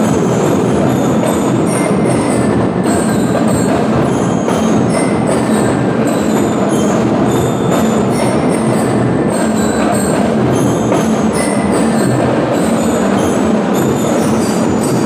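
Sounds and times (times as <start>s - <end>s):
bell lyres ringing: 0.0s - 15.0s
marching drums: 0.0s - 15.0s.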